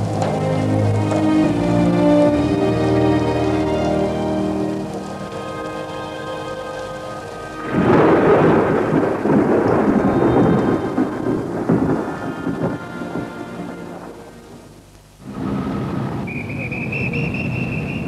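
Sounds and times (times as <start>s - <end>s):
soft background music: 0.0s - 14.7s
steady rain: 0.0s - 18.0s
thunder clap and rumble: 7.5s - 16.7s.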